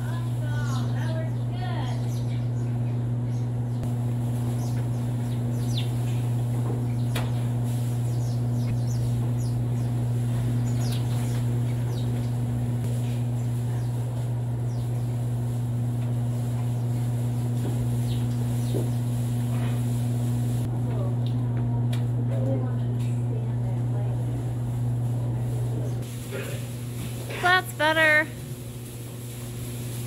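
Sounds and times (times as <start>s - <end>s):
small birds chirping: 0.0s - 7.4s, 8.0s - 15.4s, 17.9s - 19.2s
steady low hum: 0.0s - 30.0s.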